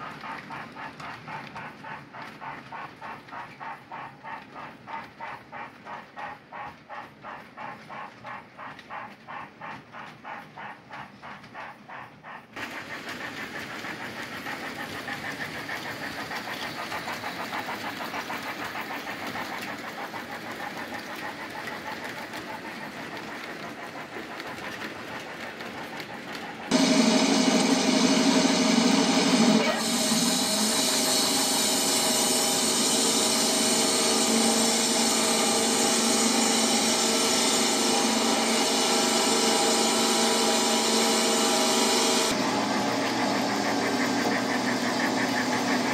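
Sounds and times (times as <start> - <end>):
model steam locomotive chuffing: 0.0 - 45.9
loud droning hum: 26.7 - 45.9.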